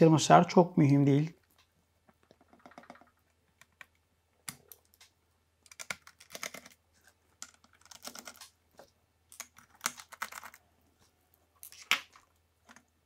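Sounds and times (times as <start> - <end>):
plastic and metal clicks and scrapes: 4.6 - 6.8, 7.4 - 8.6.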